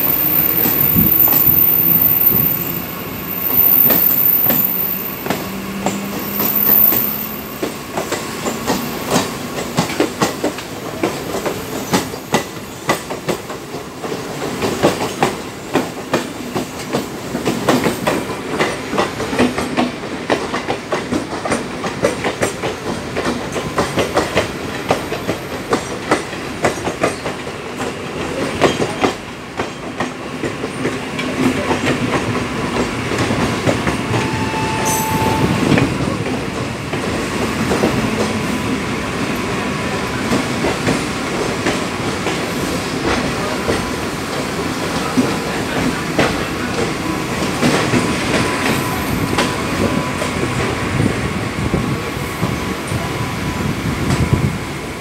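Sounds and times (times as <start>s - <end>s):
train wheels clattering over rail joints: 7.6s - 34.1s
short high tone: 34.0s - 36.1s.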